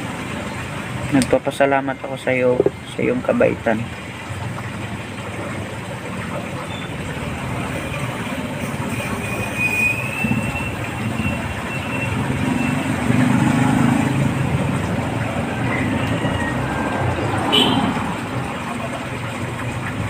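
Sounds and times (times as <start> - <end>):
vehicle rumbling: 0.0 - 20.0.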